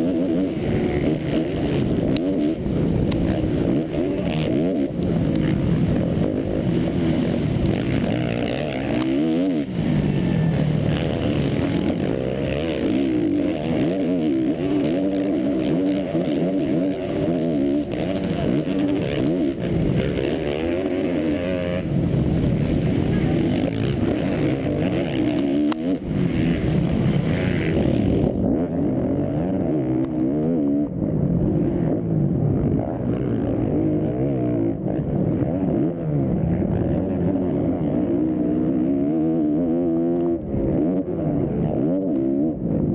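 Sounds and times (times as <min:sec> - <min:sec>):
motocross bike engine revving: 0:00.0 - 0:42.9.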